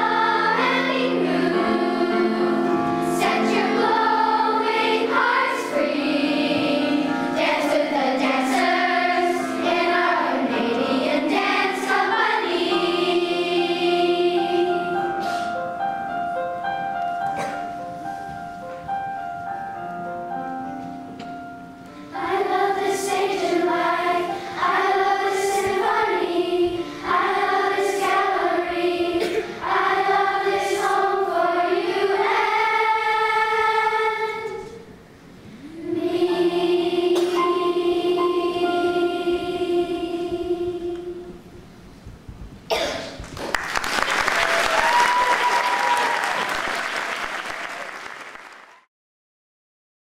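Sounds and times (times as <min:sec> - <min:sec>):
children's choir singing: 0:00.0 - 0:15.6, 0:22.1 - 0:34.9, 0:35.5 - 0:41.6, 0:42.7 - 0:43.0
backing accompaniment: 0:00.0 - 0:41.8.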